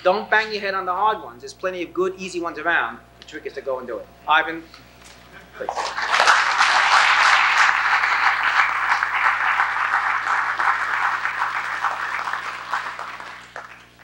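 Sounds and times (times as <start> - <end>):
audience applauding: 5.7 - 14.0.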